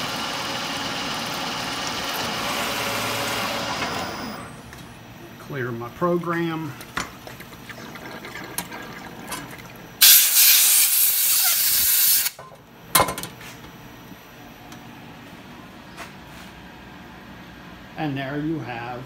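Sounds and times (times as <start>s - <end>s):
compressed air blow gun hissing: 10.0s - 12.4s.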